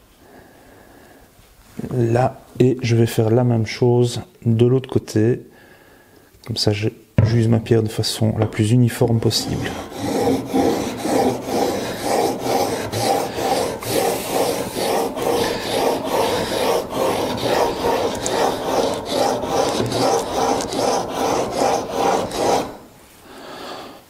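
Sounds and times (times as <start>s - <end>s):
chisel scraping on wet whetstone: 9.2s - 22.9s.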